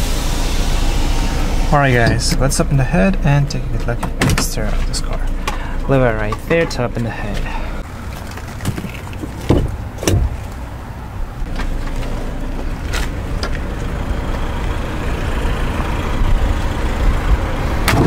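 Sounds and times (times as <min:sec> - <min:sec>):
car engine idling: 0:00.0 - 0:18.0
hood release lever clacks: 0:03.8 - 0:07.1, 0:08.4 - 0:10.6.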